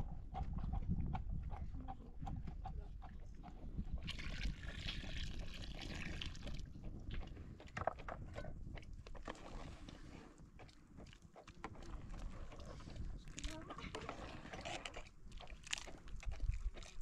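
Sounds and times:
liquid pouring into a pot: 4.0 - 6.7.

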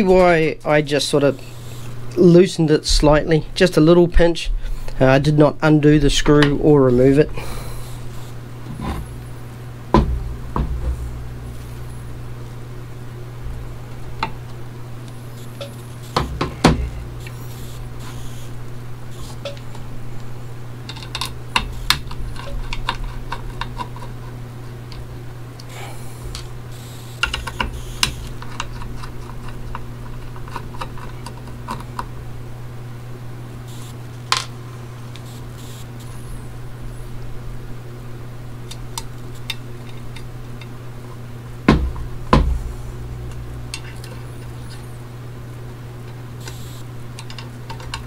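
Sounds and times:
low hum: 0.0 - 48.0
hard drive clicking and knocking on desk: 9.9 - 11.0, 15.5 - 18.4, 20.9 - 25.1, 26.3 - 32.1, 41.6 - 42.7, 46.4 - 48.0.

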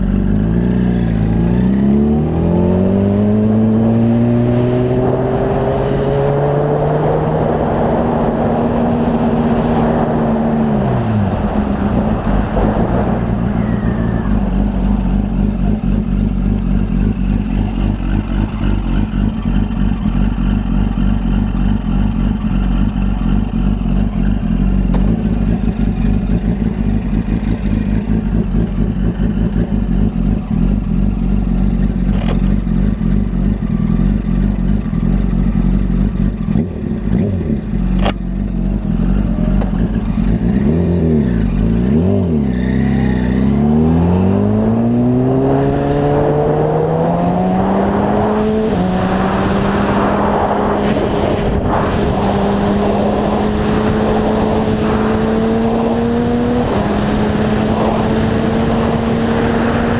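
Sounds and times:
motorcycle engine revving: 0.0 - 59.9
wind noise: 1.1 - 16.4, 43.7 - 59.9.

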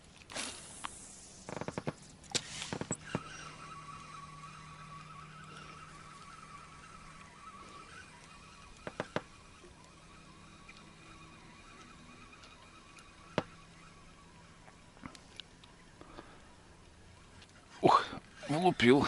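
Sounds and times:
faint hum: 0.0 - 18.8
fishing reel clicks: 0.8 - 15.8.

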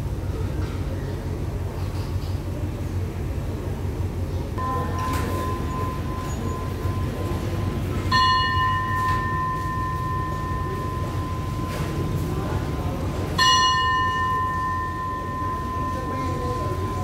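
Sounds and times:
low steady rumble: 0.0 - 17.0
station bell ringing: 4.6 - 17.0.

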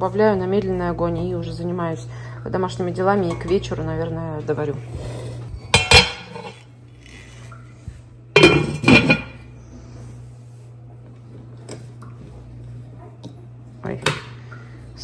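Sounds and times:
steady low hum: 0.0 - 15.0
pot and lid clanking: 5.7 - 6.6, 8.4 - 9.4.

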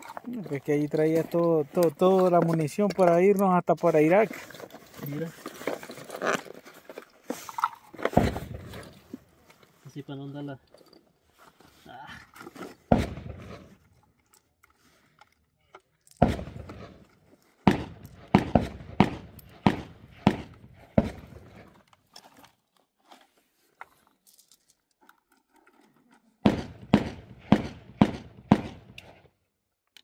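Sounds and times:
shotgun shots echoing: 8.1 - 8.8, 12.9 - 13.7, 16.2 - 17.0, 17.6 - 21.5, 26.4 - 29.2.

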